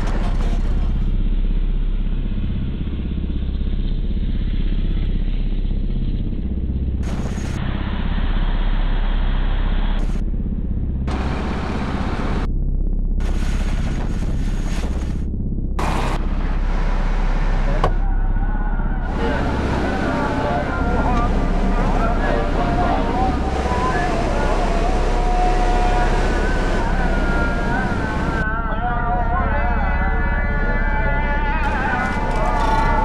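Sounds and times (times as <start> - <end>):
engine and road rumble: 0.0 - 29.0.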